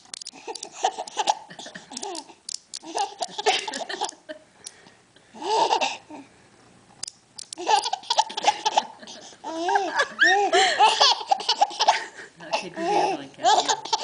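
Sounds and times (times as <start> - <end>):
baby laughing: 0.4 - 4.2, 5.4 - 6.2, 7.6 - 14.0.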